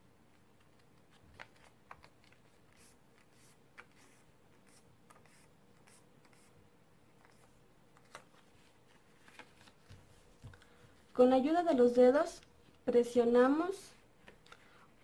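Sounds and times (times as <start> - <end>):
paper rustling and crinkling: 7.2 - 11.0.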